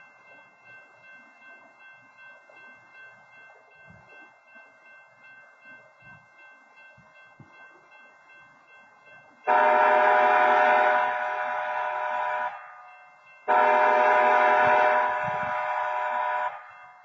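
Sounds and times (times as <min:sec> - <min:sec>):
locomotive air horn: 0:09.5 - 0:12.7, 0:13.5 - 0:16.8.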